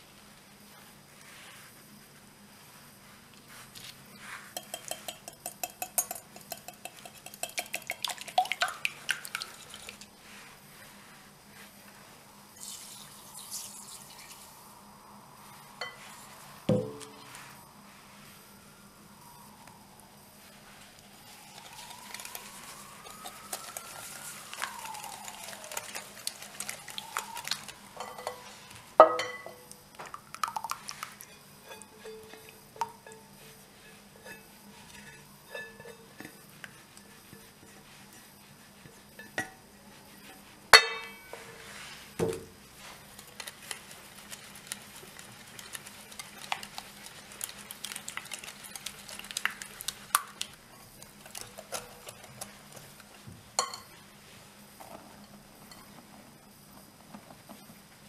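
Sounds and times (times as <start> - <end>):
whisk scraping a glass bowl: 4.2 - 8.4, 43.4 - 50.0
whisk clinking on glass bowl: 4.6 - 8.8.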